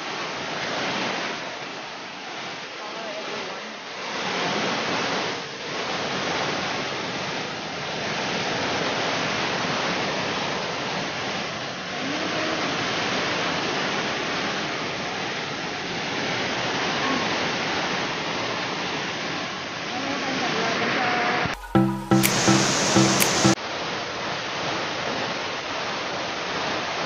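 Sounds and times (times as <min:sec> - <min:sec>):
waterfall rushing: 0:21.6 - 0:23.6.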